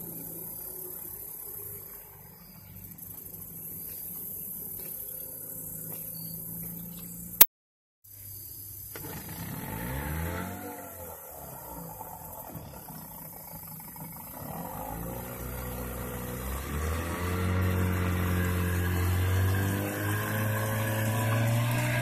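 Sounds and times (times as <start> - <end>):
small outboard motor running: 8.9 - 22.0.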